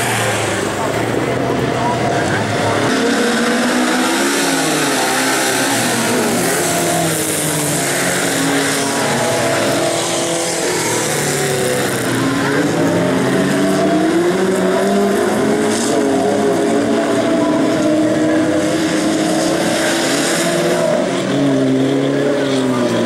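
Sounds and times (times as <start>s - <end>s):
race car engines revving: 0.0s - 23.0s.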